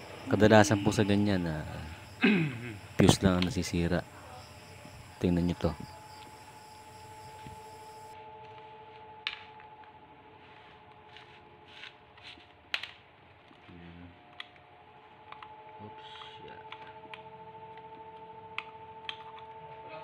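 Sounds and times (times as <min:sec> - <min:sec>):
faint steady hum: 0:00.0 - 0:20.0
plastic and metal parts clicking: 0:18.6 - 0:19.6.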